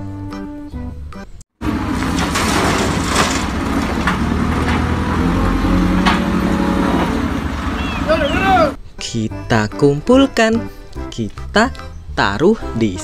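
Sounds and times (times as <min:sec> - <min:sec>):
rocks clattering into trailer: 0:01.6 - 0:08.5
diesel engine running: 0:01.6 - 0:08.8
sharp knocks: 0:01.7 - 0:07.8.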